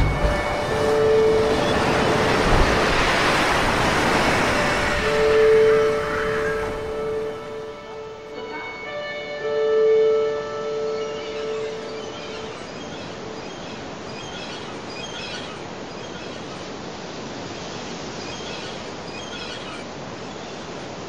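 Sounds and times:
held music note: 0.0 - 12.8
surf rushing: 0.0 - 21.0
wind: 0.0 - 21.0.

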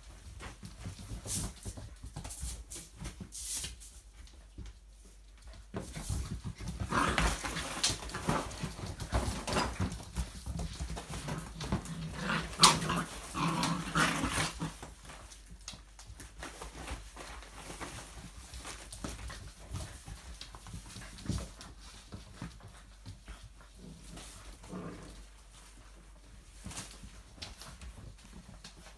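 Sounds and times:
scrabbling on wooden floor: 5.6 - 28.9
puppies growling and yipping: 11.0 - 15.2.

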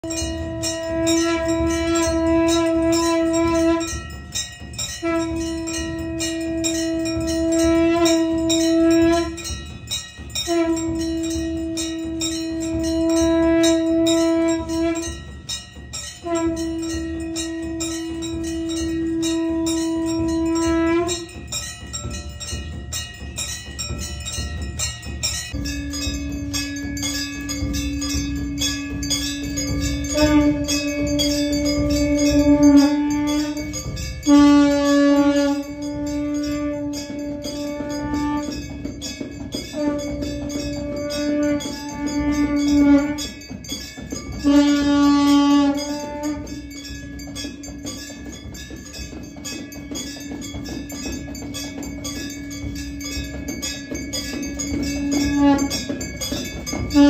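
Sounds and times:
conch shell blasts: 0.0 - 24.9, 25.5 - 48.3, 50.6 - 57.0
temple bells ringing: 0.0 - 57.0.

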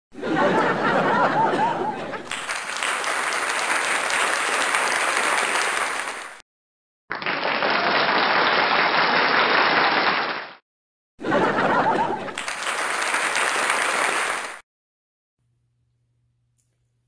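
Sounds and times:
audience applauding: 2.2 - 6.4, 7.1 - 10.6, 11.5 - 14.6.

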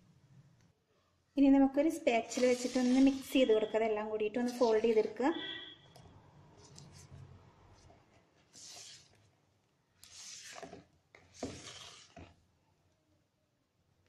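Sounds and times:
spatula scraping batter in bowl: 2.2 - 3.7, 4.3 - 5.2, 10.0 - 12.4.

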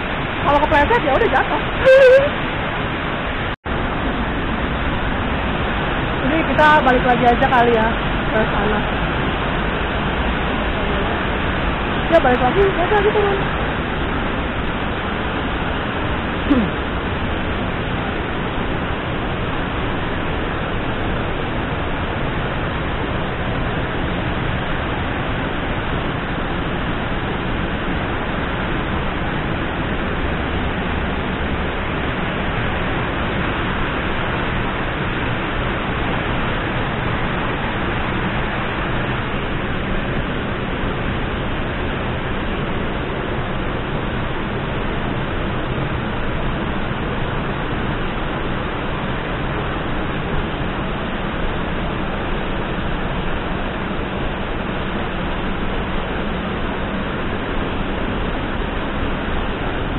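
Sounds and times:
heavy rain: 0.0 - 59.9
waterfall rushing: 0.0 - 59.9.

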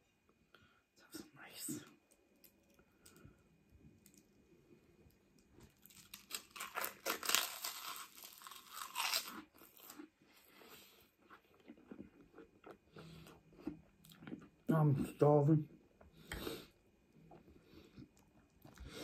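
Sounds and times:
cracker crunching: 5.3 - 10.2.

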